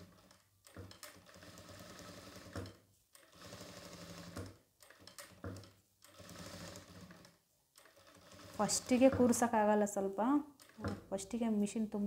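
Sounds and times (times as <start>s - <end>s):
sewing machine stitching: 0.0s - 9.6s.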